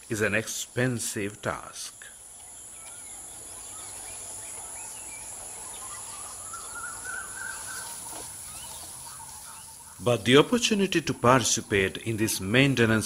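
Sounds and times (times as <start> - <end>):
insects trilling: 0.0 - 13.0
faint bird chirps: 1.9 - 12.1.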